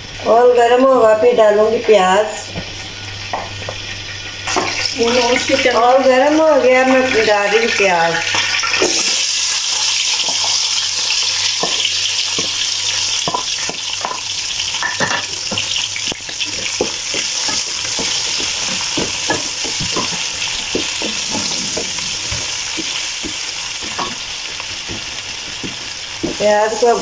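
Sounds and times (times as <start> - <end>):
onions sizzling in hot oil: 0.0 - 27.0
wooden spatula stirring: 15.4 - 27.0.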